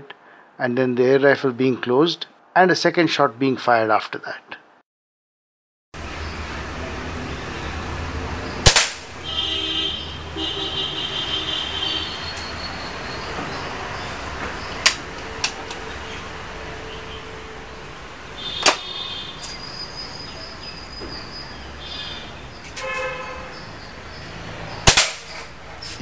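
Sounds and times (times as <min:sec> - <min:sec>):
steady background noise: 0:06.0 - 0:26.0
air rifle shot crack: 0:08.6 - 0:09.1, 0:24.8 - 0:25.3.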